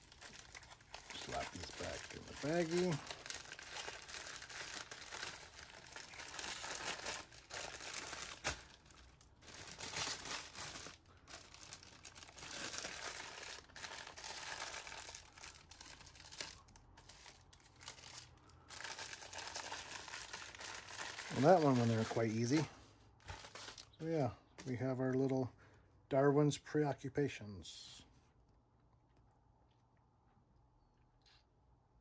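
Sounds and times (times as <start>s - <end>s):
plastic bag crinkling: 0.0s - 24.0s.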